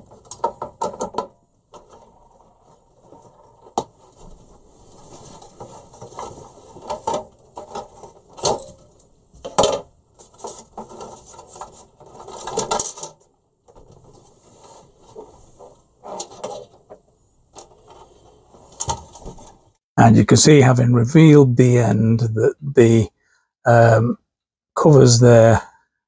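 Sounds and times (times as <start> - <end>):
plastic cover clicks and knocks: 0.0 - 2.1.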